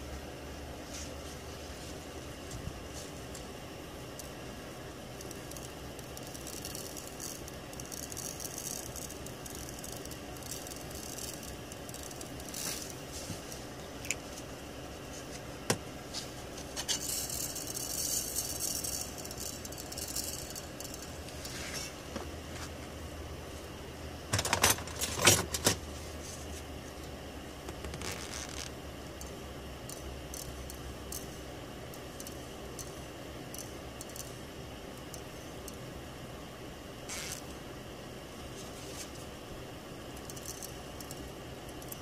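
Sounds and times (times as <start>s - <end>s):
solder balls rattling: 5.1s - 14.4s, 16.6s - 21.6s, 40.2s - 42.0s.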